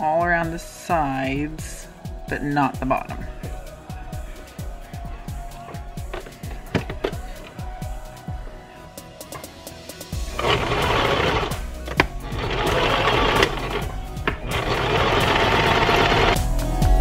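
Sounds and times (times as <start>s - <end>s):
sewing machine stitching: 10.2s - 16.4s.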